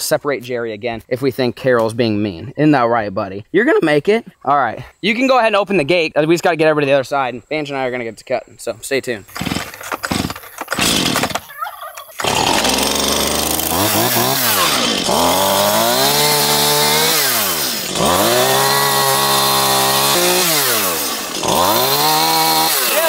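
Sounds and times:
chainsaw cutting branches: 0:09.2 - 0:23.0.

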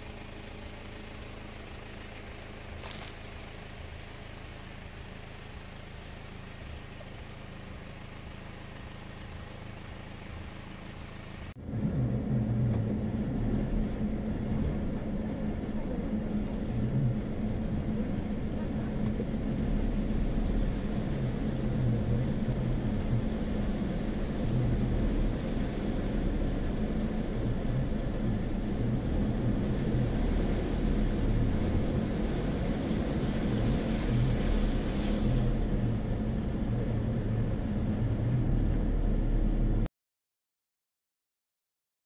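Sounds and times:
car engine hum from inside: 0:00.0 - 0:39.9
hiss of water: 0:18.5 - 0:38.2.

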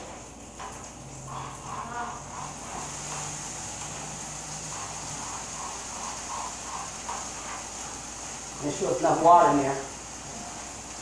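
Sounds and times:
steady hiss of cooking: 0:00.0 - 0:11.0
spoon scraping skillet: 0:00.6 - 0:08.8.

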